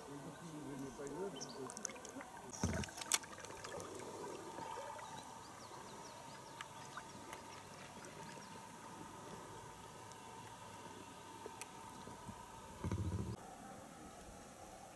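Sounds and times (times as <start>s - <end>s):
faint hiss of water: 0.0s - 14.9s.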